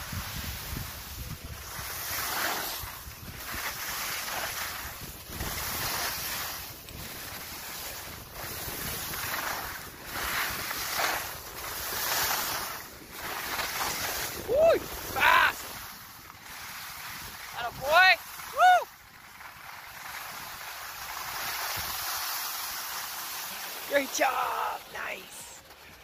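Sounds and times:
wind buffeting microphone: 0.0 - 12.0
skis scraping across snow: 0.0 - 26.0.

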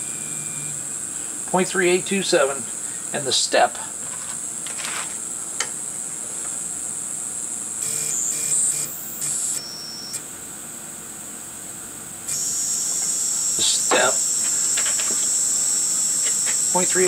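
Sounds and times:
stepper motor jog whines: 0.0 - 1.4, 7.2 - 10.3, 12.1 - 17.0
high-pitched electrical whine: 0.0 - 10.7, 12.1 - 17.0.

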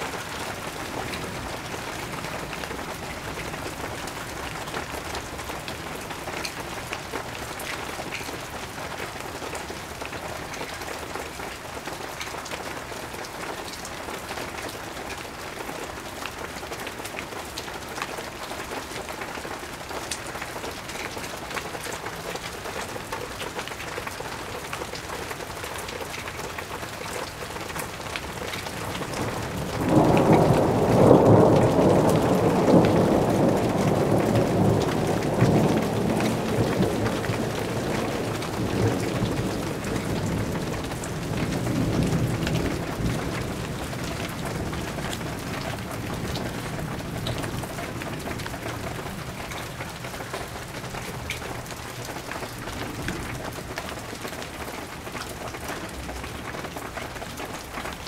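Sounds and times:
steady rain falling: 0.0 - 58.0
thunder rumble: 28.6 - 49.9.

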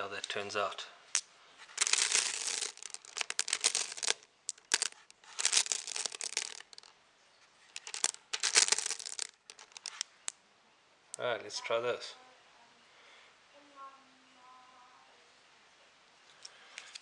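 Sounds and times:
glass marbles clattering: 1.1 - 6.9, 7.7 - 10.0.

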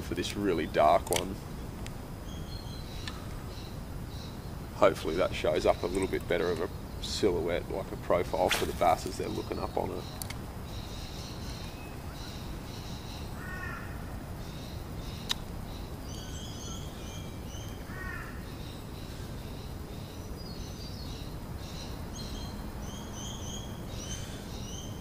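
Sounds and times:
birds chirping: 0.0 - 25.0
low background noise: 0.0 - 25.0
low bird calls: 0.0 - 25.0
sharp click: 1.0 - 2.0, 15.2 - 15.4.

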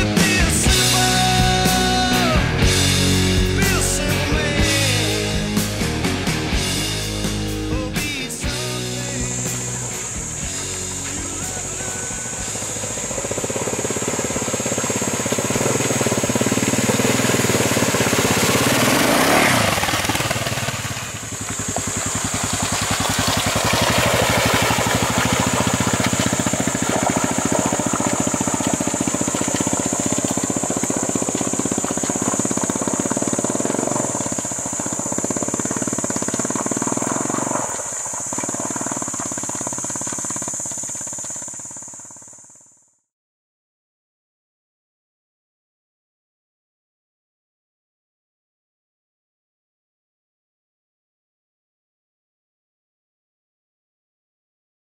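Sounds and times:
motorcycle engine running: 0.0 - 42.8
water splashing: 13.5 - 35.1.

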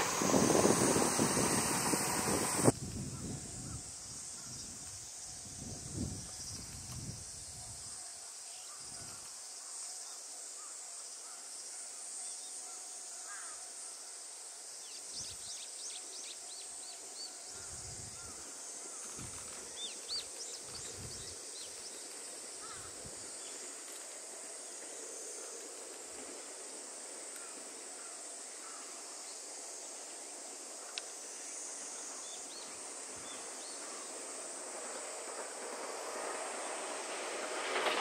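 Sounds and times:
wind rumbling on microphone: 0.0 - 7.9, 20.6 - 21.4
insects droning: 0.0 - 38.0.

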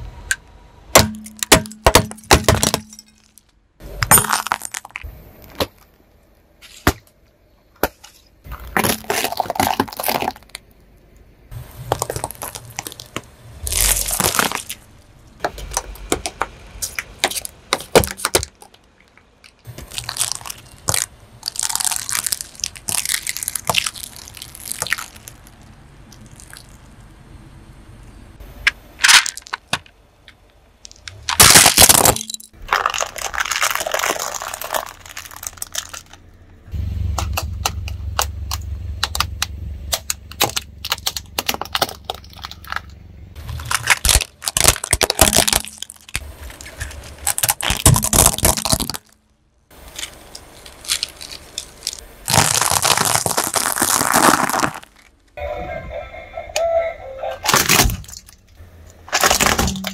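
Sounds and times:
rubbery toys being flattened: 0.9 - 6.0, 7.8 - 10.8, 11.6 - 27.1, 28.6 - 36.4, 37.2 - 55.4, 57.4 - 59.9
eggs cracking and squashing: 0.9 - 6.1, 8.5 - 10.9, 11.8 - 27.1, 28.7 - 36.3, 37.2 - 55.4, 57.5 - 59.9
foil items crackling under tyre: 8.5 - 10.7, 11.6 - 27.1, 30.8 - 36.4, 40.0 - 55.4, 59.1 - 59.9
low rumble: 34.4 - 44.1.

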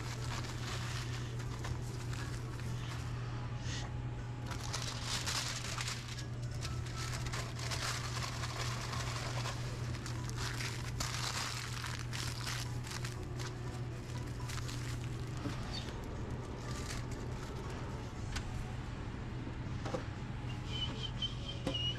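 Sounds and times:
paper and foil crinkling: 0.0 - 3.2, 4.4 - 18.1
steady low hum: 0.0 - 21.9.

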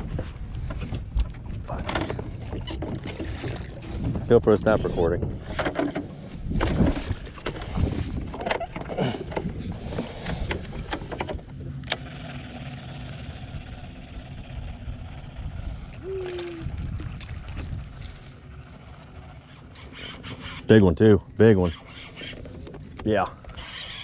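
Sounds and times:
low rumble: 9.0 - 19.5
faint hum: 12.8 - 20.4.

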